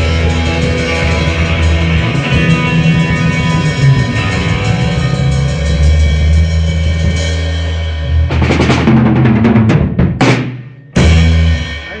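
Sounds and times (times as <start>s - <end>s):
cymbal crashes: 0.0s - 8.1s
rock band holding chord: 0.0s - 12.0s
fast drum fill: 8.1s - 12.0s.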